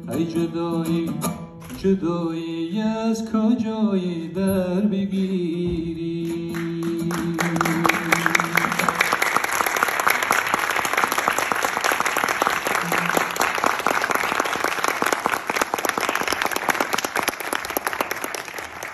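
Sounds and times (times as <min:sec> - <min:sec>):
audience applauding: 0:06.5 - 0:18.9.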